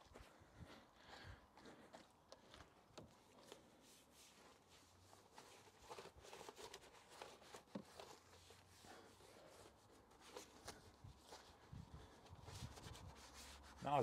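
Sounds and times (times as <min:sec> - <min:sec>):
brush rubbing on plastic: 0:03.4 - 0:14.0.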